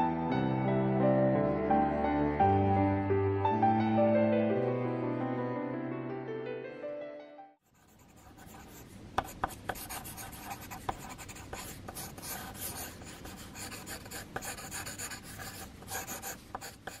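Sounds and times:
pencil sketching on paper: 7.6s - 17.0s.

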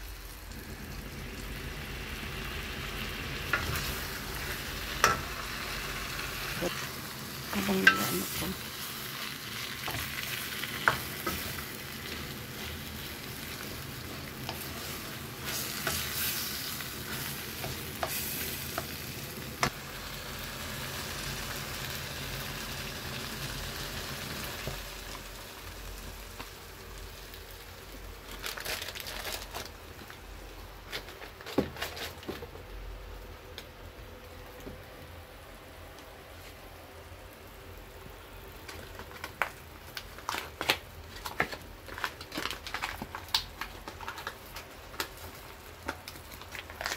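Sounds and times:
chicken sizzling in a wok: 0.0s - 30.0s.

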